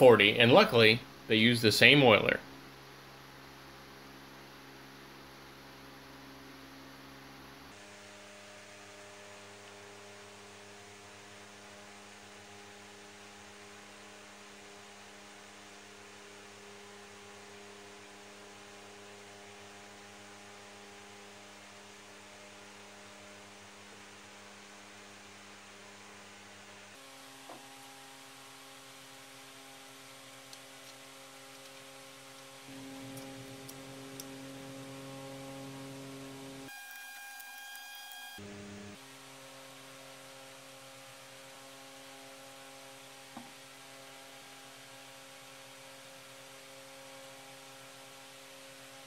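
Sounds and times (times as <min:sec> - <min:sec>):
electrical hum: 0:27.0 - 0:39.0.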